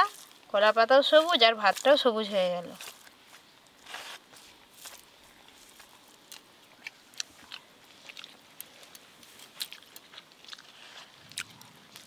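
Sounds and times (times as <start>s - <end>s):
faint chewing with mouth clicks: 2.8s - 12.0s.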